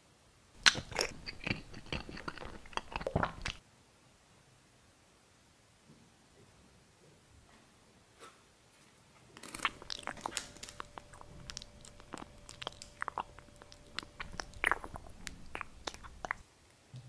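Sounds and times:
crackles and clicks: 0:00.6 - 0:03.6, 0:09.4 - 0:16.8
faint steady whine: 0:09.2 - 0:17.0.

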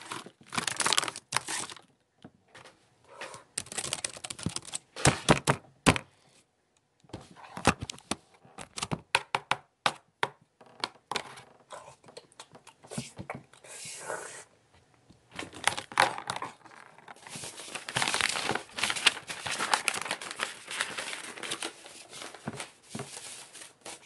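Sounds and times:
crunching and crinkling: 0:00.0 - 0:01.9, 0:15.3 - 0:24.0.

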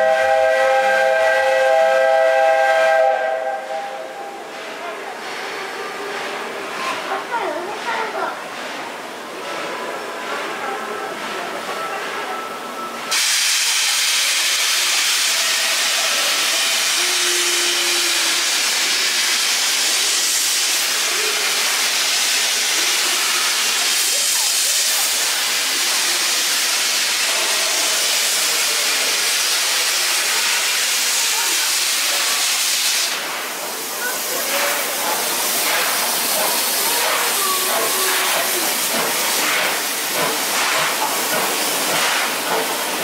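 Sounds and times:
steam locomotive hissing: 0:00.0 - 0:43.0.

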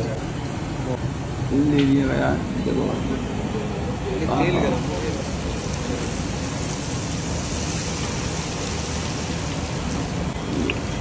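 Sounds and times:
oil sizzling while deep-frying: 0:04.5 - 0:11.0.

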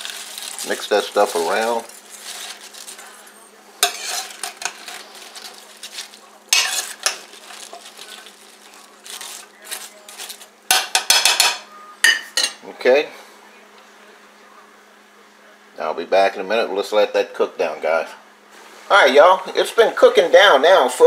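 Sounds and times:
metal spoon scraping a stockpot: 0:03.8 - 0:08.4.

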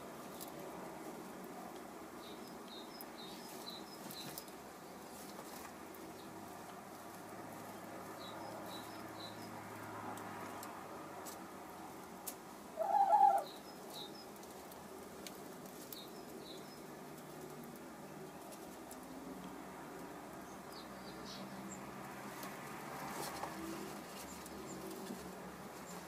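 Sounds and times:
small birds chirping: 0:01.7 - 0:09.7, 0:12.6 - 0:22.5, 0:23.1 - 0:26.0
hen call: 0:12.8 - 0:13.6.

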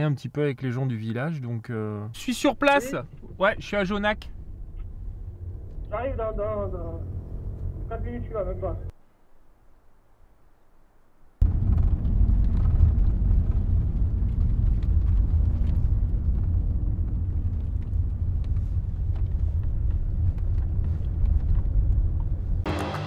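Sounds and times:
car cabin rumble: 0:02.3 - 0:08.9.

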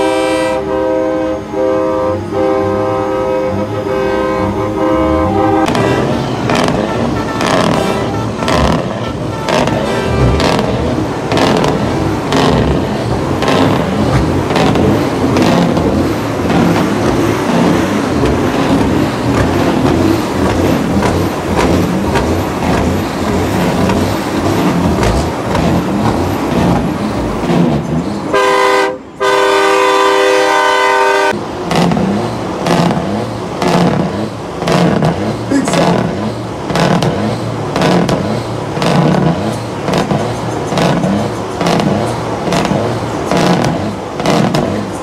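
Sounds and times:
truck air horn blasts: 0:00.0 - 0:11.8, 0:28.3 - 0:31.4
diesel truck engines rumbling: 0:00.0 - 0:45.0.

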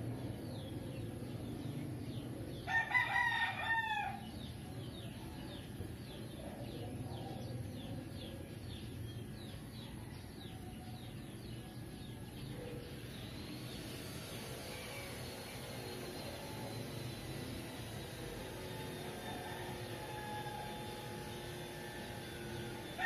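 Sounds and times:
low steady background noise: 0:00.0 - 0:23.0
rooster crowing: 0:02.7 - 0:04.4, 0:18.6 - 0:21.4, 0:22.8 - 0:23.0.

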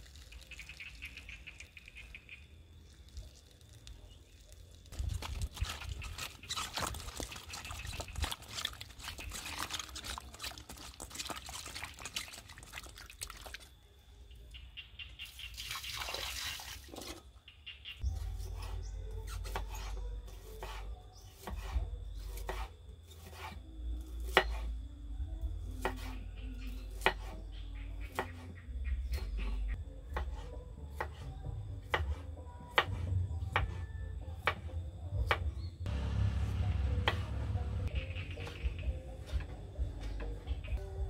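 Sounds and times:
knife chopping on wooden board: 0:22.4 - 0:23.6, 0:27.0 - 0:27.4
low rumble: 0:35.5 - 0:38.0.

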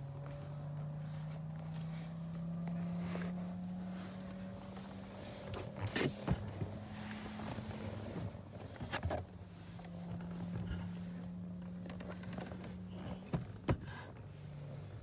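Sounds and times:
car cabin hum: 0:00.0 - 0:15.0.

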